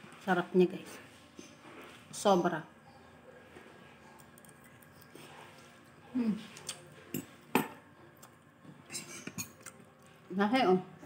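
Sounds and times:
woman humming: 0:06.1 - 0:06.5.

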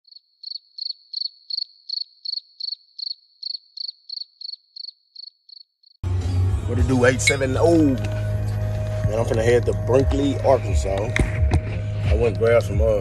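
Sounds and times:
cricket chirping: 0:00.0 - 0:06.0.

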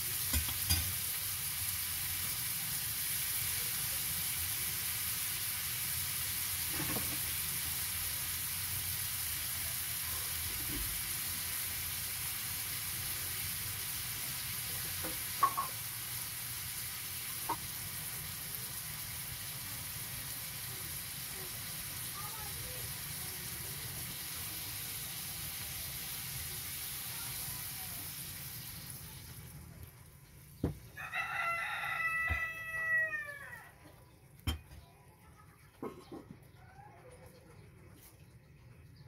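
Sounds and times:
food sizzling in wok: 0:00.0 - 0:33.6.

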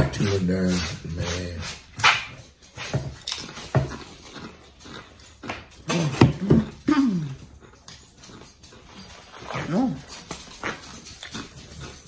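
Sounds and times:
dog whining: 0:05.9 - 0:07.6.

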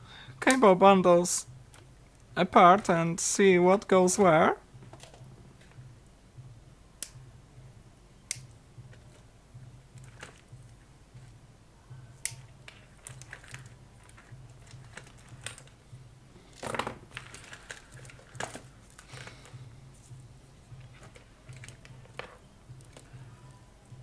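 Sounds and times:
faint pulsing low hum: 0:00.0 - 0:24.0
zip ties being snipped: 0:12.2 - 0:12.5.

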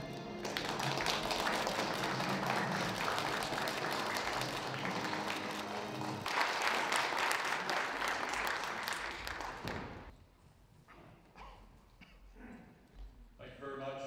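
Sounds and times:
music: 0:00.0 - 0:07.2
audience applauding: 0:00.0 - 0:10.1.

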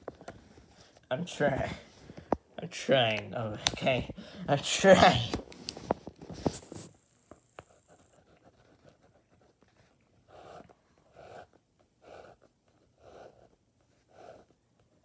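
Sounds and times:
pen scratching on paper: 0:06.3 - 0:15.0.

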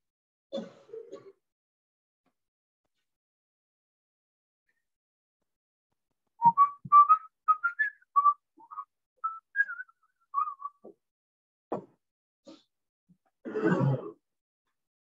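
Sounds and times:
man whistling a tune: 0:06.4 - 0:10.8.

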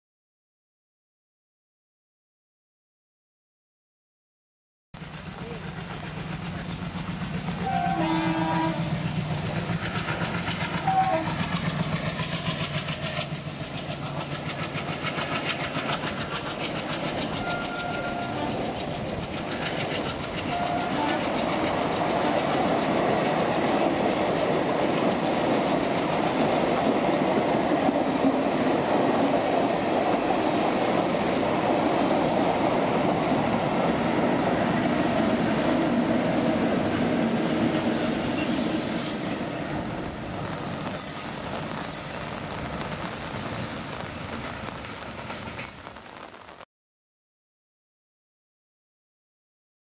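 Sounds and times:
train wheels clacking on rails: 0:05.0 - 0:45.9
electric locomotives passing: 0:05.0 - 0:46.3
train horn: 0:07.6 - 0:09.2, 0:10.7 - 0:11.5, 0:17.4 - 0:18.6, 0:20.5 - 0:21.5.

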